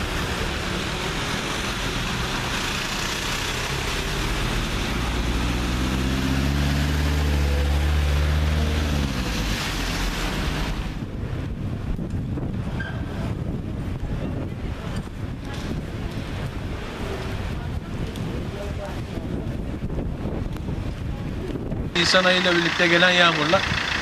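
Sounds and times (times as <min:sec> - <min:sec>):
van engine passing: 0:00.0 - 0:11.4, 0:22.0 - 0:24.0
wind noise: 0:08.7 - 0:22.0.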